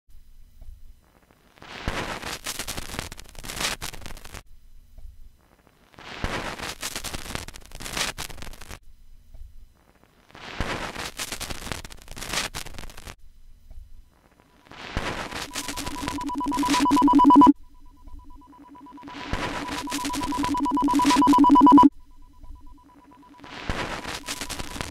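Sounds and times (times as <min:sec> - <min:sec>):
bursts of static-like noise: 0:10.3 - 0:13.2, 0:14.2 - 0:24.9
pulsing low and high tones: 0:15.3 - 0:24.9.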